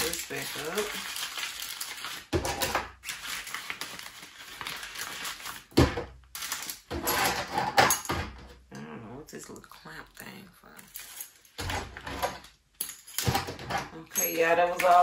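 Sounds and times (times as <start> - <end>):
plastic bags crinkling: 0.0 - 6.9.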